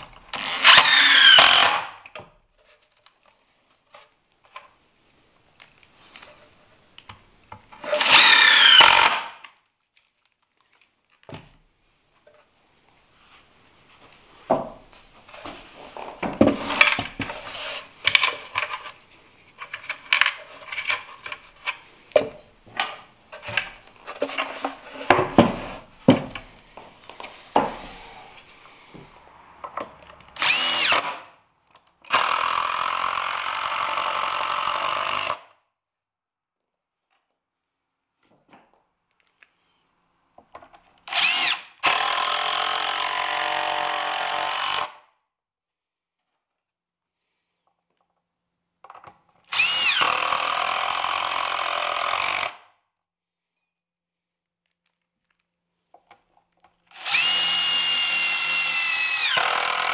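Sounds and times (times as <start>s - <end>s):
cordless drill driving screws: 0.3s - 1.9s, 7.8s - 9.3s, 30.4s - 31.2s, 32.1s - 35.5s, 41.0s - 45.0s, 49.5s - 52.6s, 56.9s - 59.9s
wood and hardware clattering: 14.4s - 19.0s, 19.6s - 28.1s.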